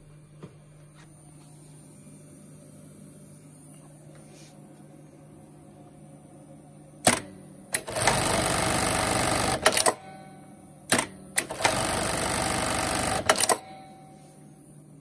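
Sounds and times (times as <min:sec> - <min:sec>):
sewing machine stitching: 0:07.8 - 0:09.9, 0:11.4 - 0:13.6
sewing machine clacks: 0:07.8 - 0:10.0, 0:11.0 - 0:13.6.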